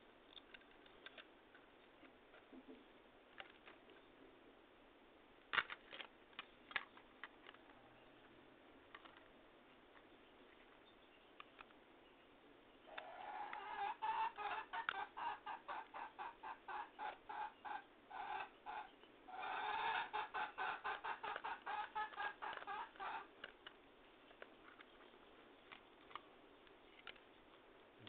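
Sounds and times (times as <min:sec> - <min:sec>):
hen cackling: 0:12.9 - 0:23.3.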